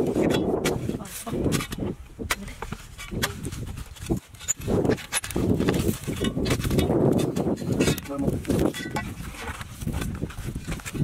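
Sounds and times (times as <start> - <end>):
digging bar striking hard earth: 0.0 - 11.0.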